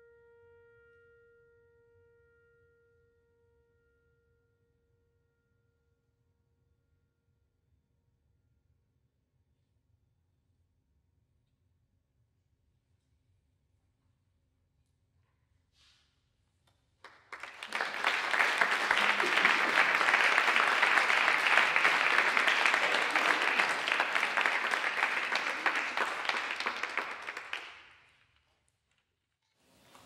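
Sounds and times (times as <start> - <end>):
audience applauding: 17.0 - 28.1.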